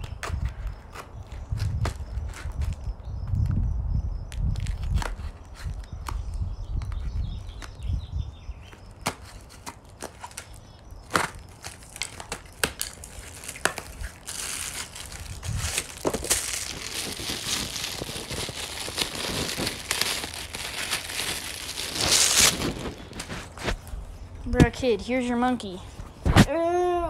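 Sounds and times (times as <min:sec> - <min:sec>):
plastic bag crinkling: 0:09.8 - 0:23.7.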